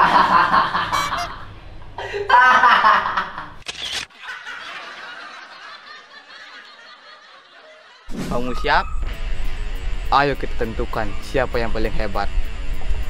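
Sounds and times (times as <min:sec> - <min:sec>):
man laughing loudly: 0:00.0 - 0:08.1.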